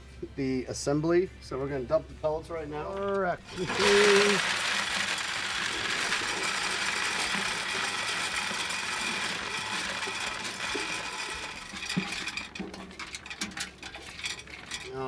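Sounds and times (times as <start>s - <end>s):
pellets scraped with clicks and knocks: 3.4s - 15.0s
pellets pouring into plastic bucket: 3.5s - 15.0s.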